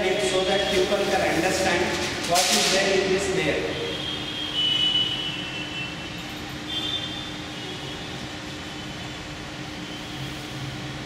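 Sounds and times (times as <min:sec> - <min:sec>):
mechanical room hum: 0:00.0 - 0:11.0.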